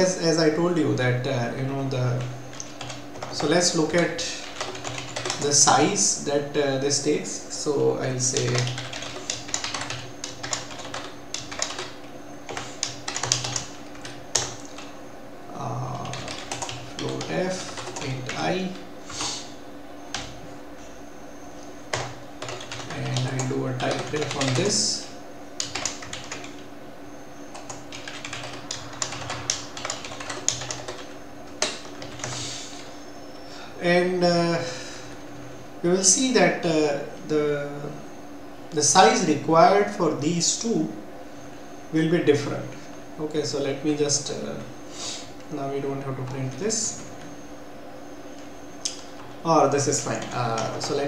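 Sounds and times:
computer keyboard typing: 0:02.1 - 0:05.9, 0:08.3 - 0:14.9, 0:15.7 - 0:19.2, 0:20.1 - 0:20.4, 0:21.9 - 0:26.7, 0:27.5 - 0:32.4, 0:46.0 - 0:47.4, 0:48.9 - 0:51.0.

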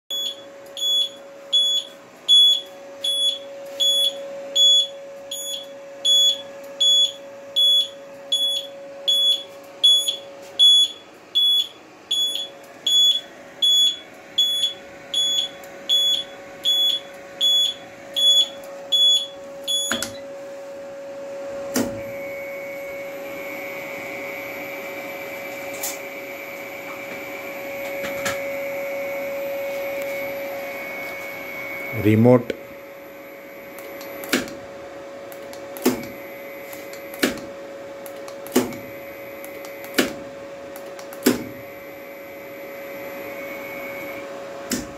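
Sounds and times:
alarm buzzer beeping: 0:00.1 - 0:20.3, 0:21.8 - 0:34.4, 0:35.8 - 0:37.2, 0:41.4 - 0:44.2
steady hum: 0:00.1 - 0:44.9
faint whine: 0:12.2 - 0:34.3.

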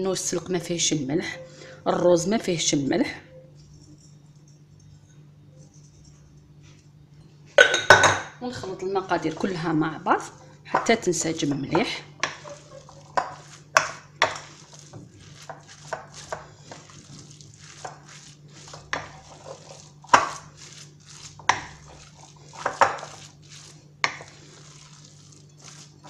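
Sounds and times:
wooden spoon scraping a bowl: 0:03.6 - 0:06.9, 0:08.5 - 0:26.0.

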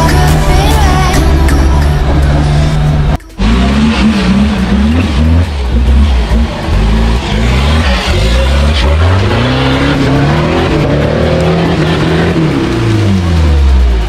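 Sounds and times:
tyres churning loose dirt: 0:00.0 - 0:14.0
engine revving hard: 0:02.0 - 0:14.0.

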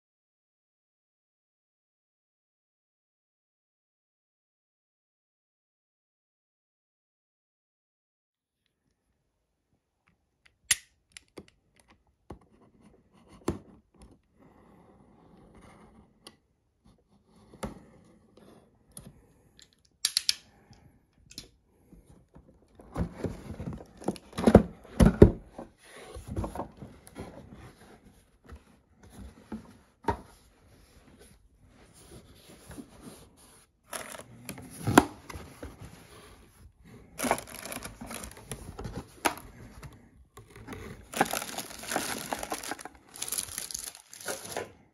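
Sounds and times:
packaging tearing and crinkling: 0:33.9 - 0:34.2, 0:37.2 - 0:39.4, 0:41.0 - 0:44.7
packaging clicks: 0:33.9 - 0:34.3, 0:37.2 - 0:39.4, 0:40.4 - 0:44.7.

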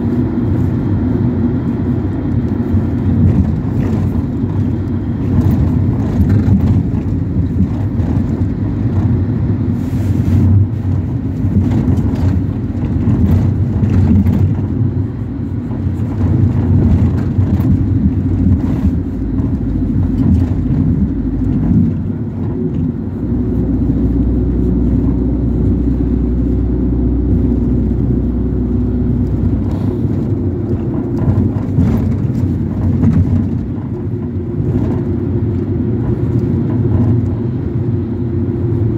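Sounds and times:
engine and road rumble: 0:00.0 - 0:38.9
knocks and rattles: 0:11.4 - 0:24.2, 0:29.2 - 0:35.1.

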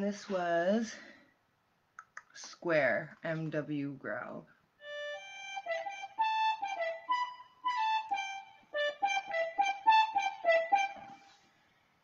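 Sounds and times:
electronic wind instrument melody: 0:04.8 - 0:11.3.

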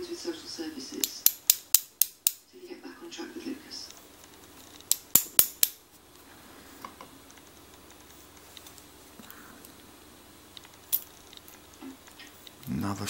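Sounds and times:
sharp metallic clicks: 0:01.0 - 0:02.4, 0:04.3 - 0:05.8.

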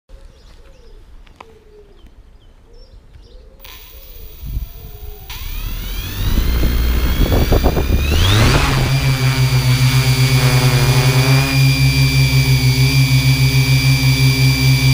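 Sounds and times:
drone propellers whining: 0:03.6 - 0:14.9
low pulsing hum: 0:03.7 - 0:14.9.

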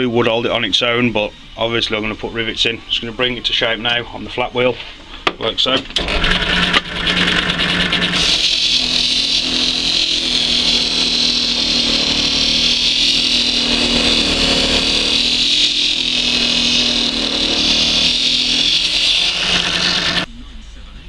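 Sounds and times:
drill motor hum: 0:05.9 - 0:20.3
sanding hiss: 0:08.2 - 0:20.3.

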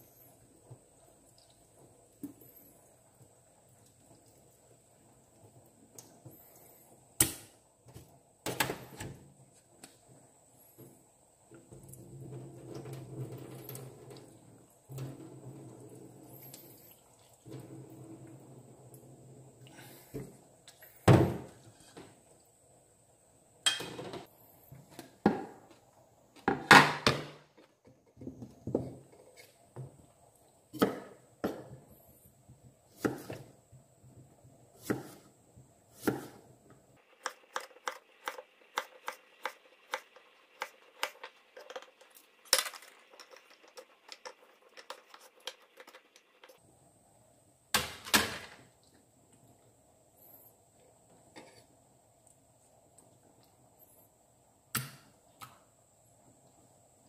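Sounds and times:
knife slicing cucumber on board: 0:34.8 - 0:35.2, 0:35.9 - 0:36.4.

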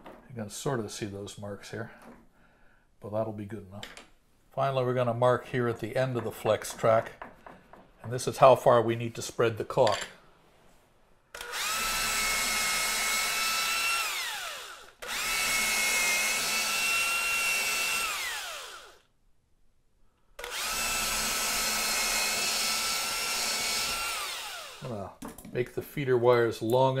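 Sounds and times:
cordless drill whining: 0:11.3 - 0:19.1, 0:20.4 - 0:25.0.

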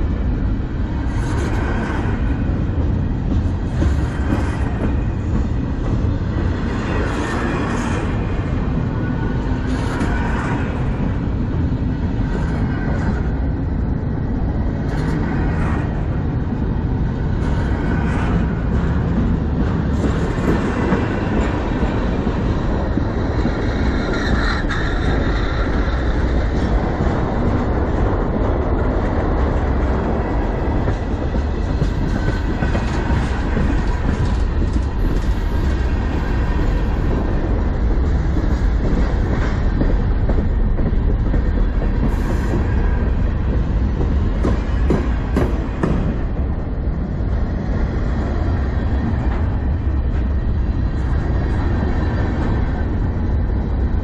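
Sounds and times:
train wheels rolling on rails: 0:00.0 - 0:54.0
wheels clacking on rail joints: 0:17.3 - 0:47.0.

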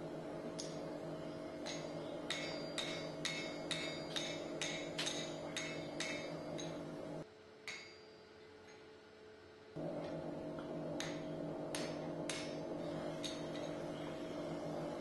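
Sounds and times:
low hum: 0:00.0 - 0:07.2, 0:09.8 - 0:15.0
hammer blows ringing on anvil: 0:01.5 - 0:07.0, 0:07.7 - 0:08.2, 0:11.0 - 0:13.9.

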